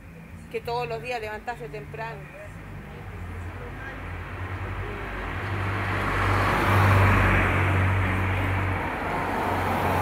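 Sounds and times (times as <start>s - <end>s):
vehicle passing by: 3.0s - 10.0s.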